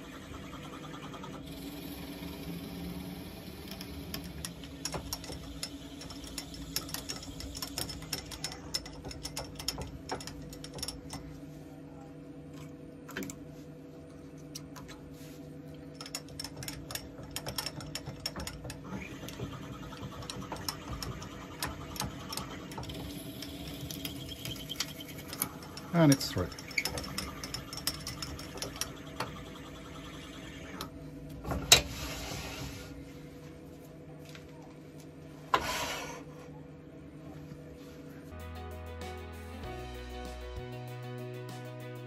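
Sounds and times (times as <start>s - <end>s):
wood lathe running: 0.0s - 9.9s, 16.4s - 30.9s.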